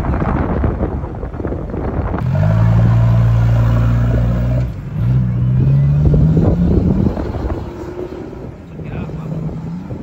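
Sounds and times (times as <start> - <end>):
engine revving in sand: 2.2 - 10.0.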